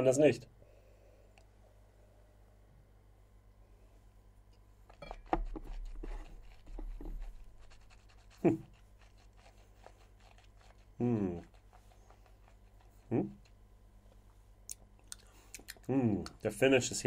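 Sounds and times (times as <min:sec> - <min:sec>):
breathy nosing and sipping: 0:04.9 - 0:13.7, 0:14.6 - 0:16.4.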